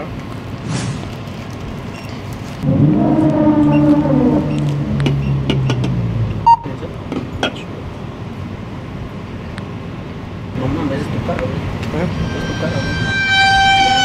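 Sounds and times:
low humming tone sinking in pitch: 2.6 - 6.7
short sharp electronic beep: 6.4 - 6.7.

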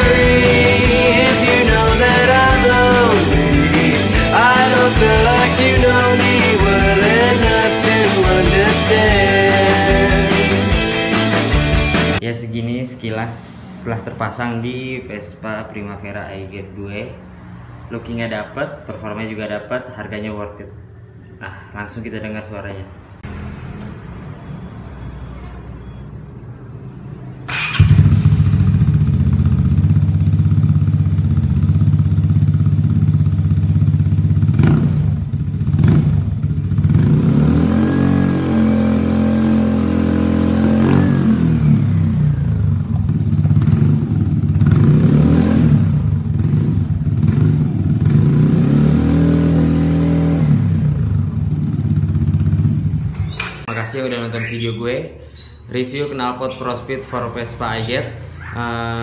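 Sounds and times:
scooter engine revving: 0.0 - 12.2, 27.4 - 53.4.

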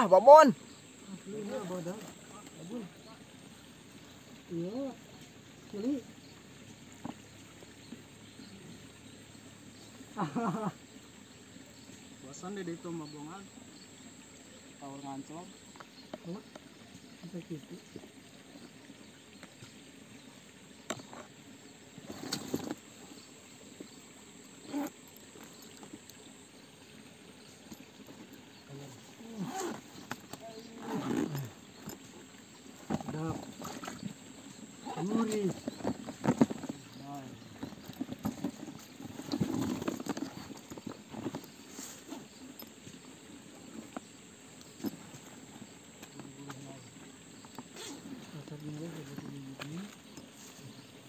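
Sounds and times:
stream hiss: 0.0 - 51.0
handling rustle: 22.0 - 26.3, 27.4 - 50.9.

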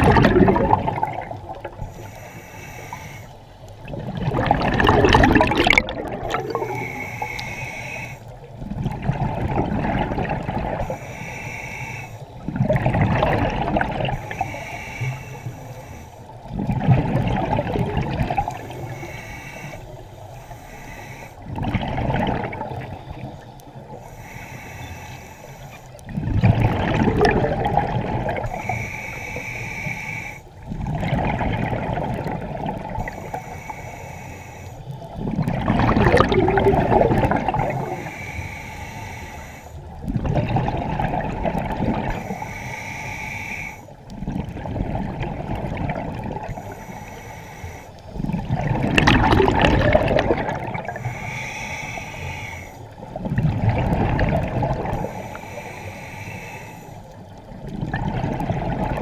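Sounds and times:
exhaled bubbles rushing: 0.0 - 1.9, 3.8 - 7.4, 8.6 - 11.0, 12.4 - 14.2, 16.4 - 18.8, 21.5 - 23.4, 26.1 - 28.6, 30.6 - 33.4, 35.1 - 38.1, 40.0 - 42.3, 44.1 - 46.7, 48.2 - 51.2, 53.0 - 55.3, 57.4 - 59.0
diver inhaling through regulator: 0.0 - 3.8, 4.5 - 8.5, 9.6 - 12.5, 13.3 - 16.8, 17.6 - 26.2, 26.8 - 59.0.

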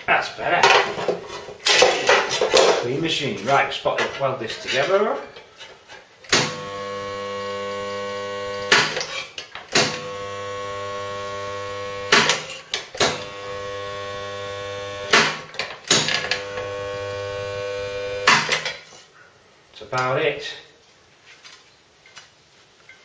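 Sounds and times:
electrical hum: 6.3 - 9.0, 9.8 - 18.5
welder clunks: 6.3 - 18.8.

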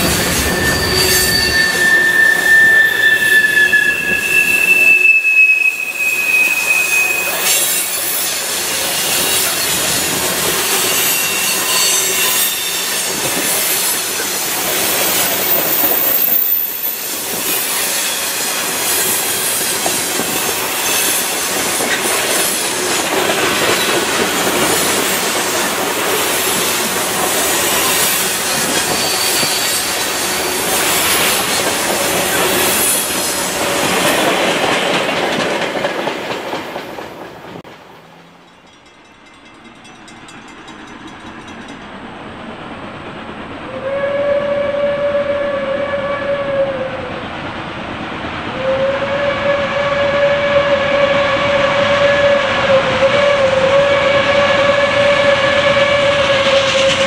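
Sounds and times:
wheels squealing against rail: 0.0 - 34.9, 48.6 - 57.0
train wheels clattering over rail: 18.4 - 42.2.

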